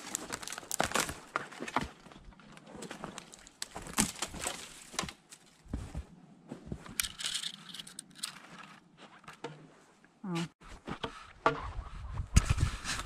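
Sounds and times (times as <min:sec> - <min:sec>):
branches brushing and scraping: 0:00.0 - 0:06.0
footsteps in shallow snow: 0:02.6 - 0:07.0.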